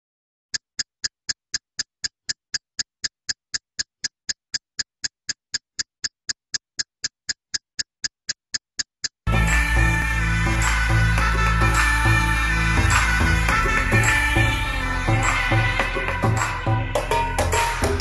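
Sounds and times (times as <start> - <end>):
clock-like ticking: 0.5 - 9.3.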